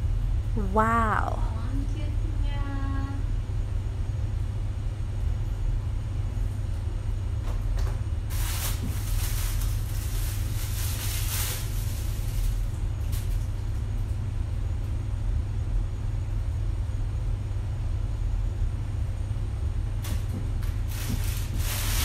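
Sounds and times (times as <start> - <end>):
steady low rumble: 0.0 - 22.0
plastic packaging crinkling: 8.3 - 13.8, 20.0 - 22.0.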